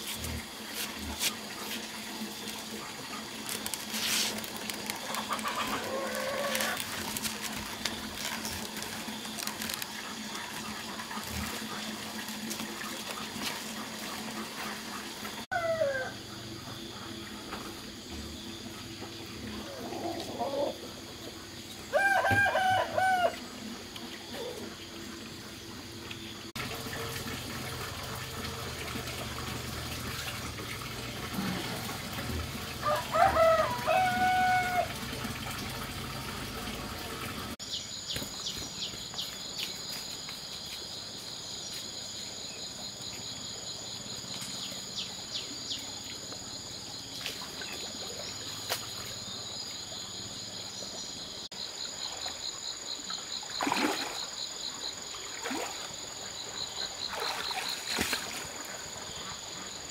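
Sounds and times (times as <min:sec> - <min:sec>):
water trickling in stream: 0:00.0 - 0:15.5, 0:16.6 - 0:59.9
rooster crowing: 0:05.2 - 0:06.8, 0:15.5 - 0:16.2, 0:21.9 - 0:23.4, 0:32.8 - 0:35.0
splashes in water: 0:53.3 - 0:59.0.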